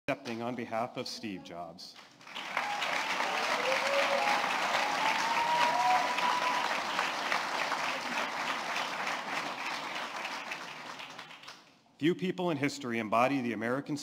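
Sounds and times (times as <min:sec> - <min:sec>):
audience applauding: 0:02.1 - 0:11.7.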